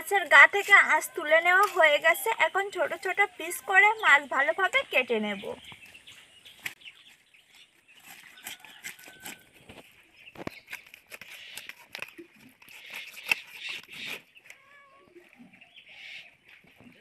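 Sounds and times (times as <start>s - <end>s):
blade cutting through fish: 8.0s - 9.5s, 10.5s - 14.3s.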